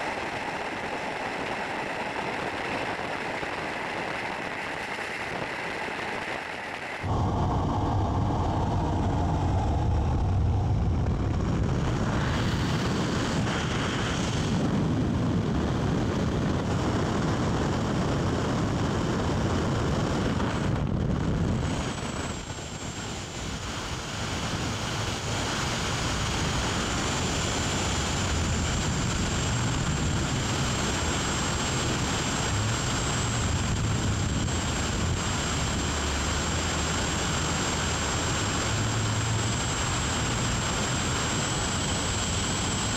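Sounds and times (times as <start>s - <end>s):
faint high whine: 0.0s - 17.9s
aircraft engine noise: 0.0s - 42.9s
freefall wind rushing: 0.0s - 42.9s.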